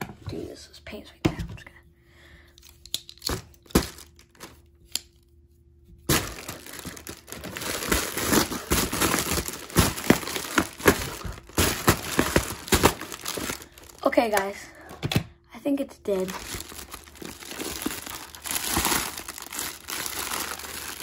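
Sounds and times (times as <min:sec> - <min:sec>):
plastic crinkling: 0:03.0 - 0:04.7, 0:06.1 - 0:14.6, 0:16.1 - 0:21.0.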